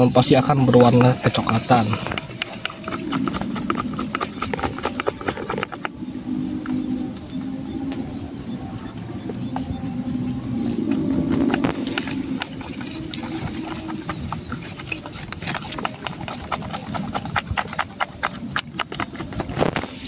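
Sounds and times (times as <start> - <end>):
stick stirring batter in steel bowl: 0.0 - 5.9, 10.8 - 20.0.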